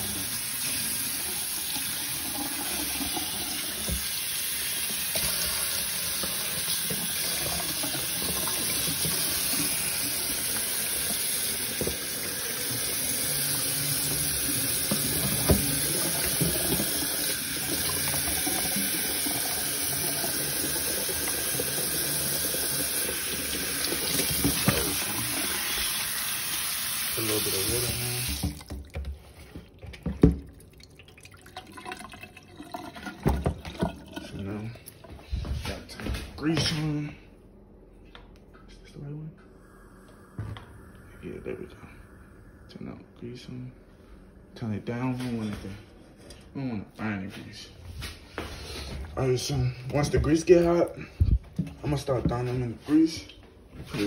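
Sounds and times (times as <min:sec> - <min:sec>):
tap running into a sink: 0:01.6 - 0:04.2, 0:04.8 - 0:26.0, 0:27.3 - 0:29.2, 0:32.9 - 0:34.2.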